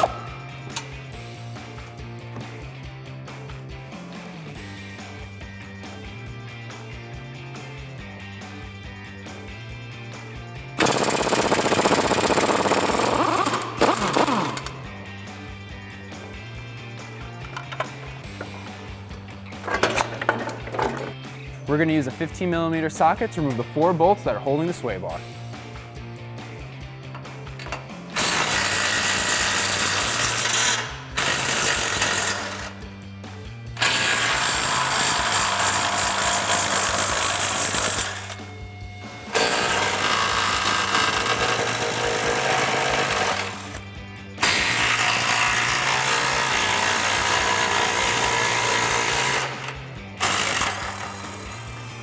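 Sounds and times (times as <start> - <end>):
impact wrench hammering bolts: 10.8 - 14.8, 17.4 - 18.8, 19.6 - 21.2, 27.1 - 32.7, 39.3 - 43.8, 44.4 - 51.7.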